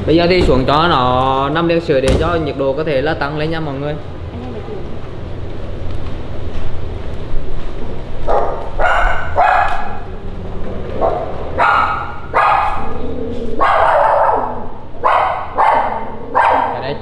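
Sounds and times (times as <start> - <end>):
dog barking: 8.2 - 10.1, 11.0 - 13.0, 13.6 - 16.9.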